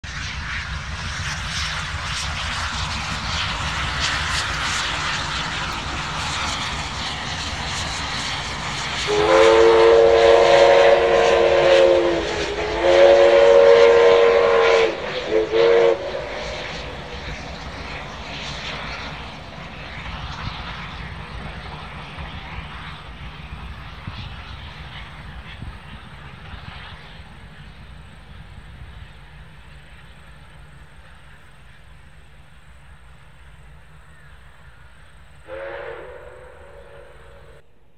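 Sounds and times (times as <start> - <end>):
steam locomotive chuffing: 0.1 - 37.6
steam whistle blasts: 9.0 - 16.9, 35.4 - 37.6.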